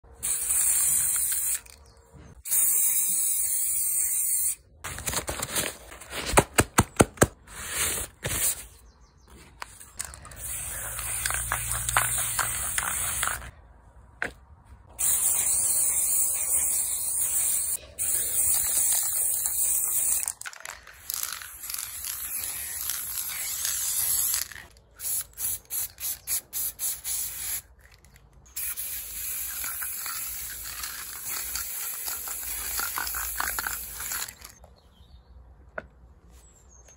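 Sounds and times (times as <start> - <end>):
spray paint can hissing: 0.2 - 1.8, 2.4 - 4.7, 10.0 - 13.5, 15.0 - 34.6.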